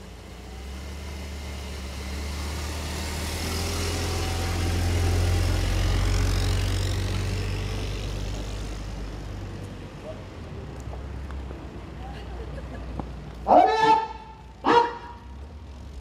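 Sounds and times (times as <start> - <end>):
car engine passing by: 0.0 - 10.2.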